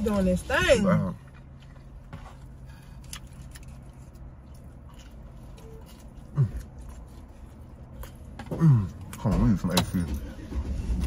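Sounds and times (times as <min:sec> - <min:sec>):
car cabin hum: 0:00.0 - 0:11.0
people chewing food: 0:00.9 - 0:09.2.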